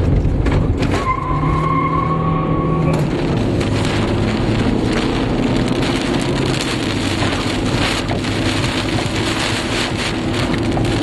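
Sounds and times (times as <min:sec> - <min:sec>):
car engine and road noise: 0:00.0 - 0:11.0
rain pelting car windshield: 0:02.6 - 0:11.0.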